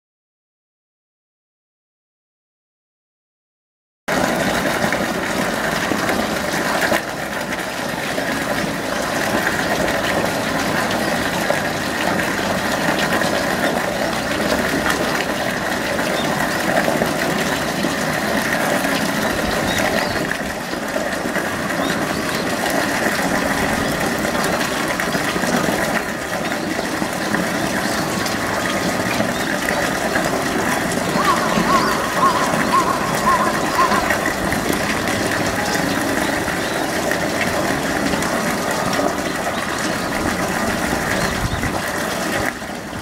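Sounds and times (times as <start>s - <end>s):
running water rushing into pool: 4.1s - 43.0s.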